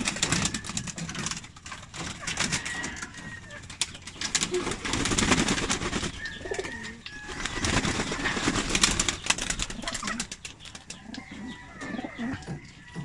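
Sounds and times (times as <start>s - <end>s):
wings flapping: 0.0s - 11.6s
pigeons cooing: 4.3s - 13.0s.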